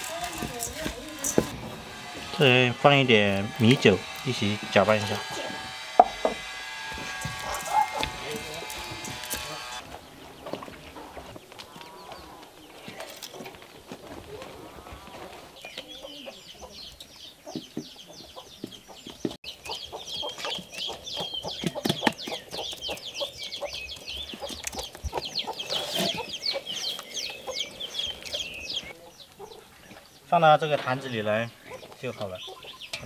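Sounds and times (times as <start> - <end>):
chicks peeping: 6.9 - 13.5, 14.6 - 30.2, 31.0 - 33.0.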